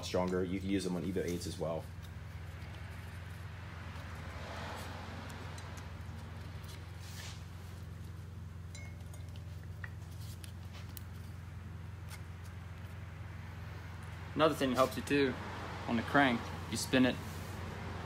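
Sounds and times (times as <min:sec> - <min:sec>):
steady low hum: 0:00.0 - 0:18.0
faint clicks and clinks: 0:08.6 - 0:11.3.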